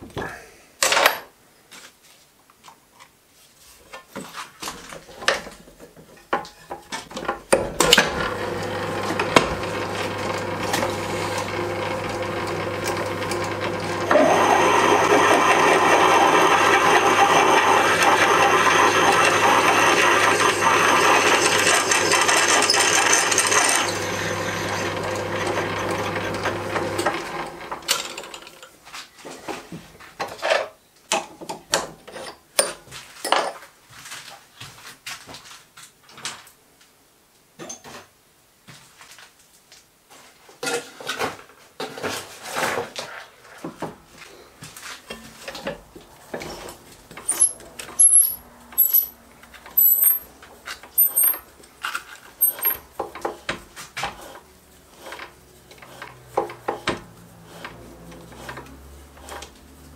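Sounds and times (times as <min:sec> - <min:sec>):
drill grinding into metal: 0:08.2 - 0:27.6, 0:47.3 - 0:49.2, 0:49.8 - 0:50.3, 0:51.0 - 0:51.4, 0:52.4 - 0:52.8
lathe motor hum: 0:08.2 - 0:27.8.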